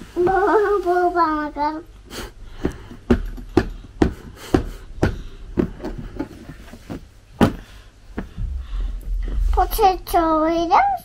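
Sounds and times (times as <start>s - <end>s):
sharp knocks on hard surface: 2.6s - 6.3s.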